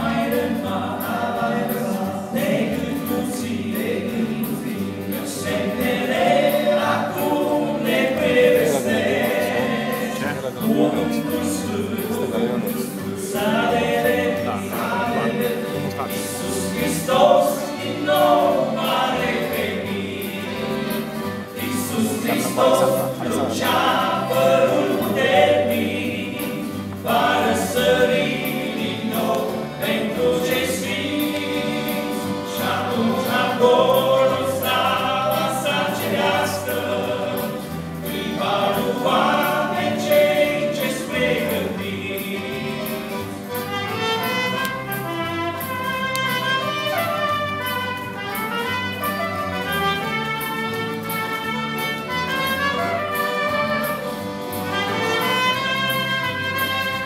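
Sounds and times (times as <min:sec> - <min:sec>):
accordion: 0:00.0 - 0:57.0
bass guitar: 0:00.0 - 0:57.0
guitars: 0:00.0 - 0:57.0
trumpet: 0:42.7 - 0:57.0.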